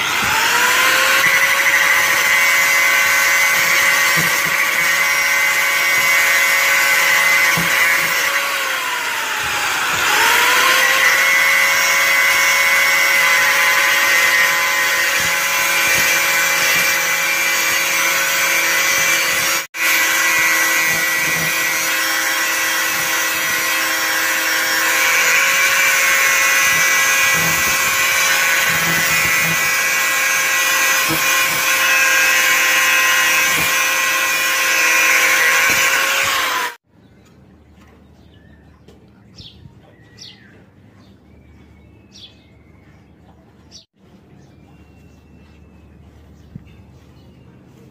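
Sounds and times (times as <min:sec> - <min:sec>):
angle grinder cutting metal: 0:00.0 - 0:36.8.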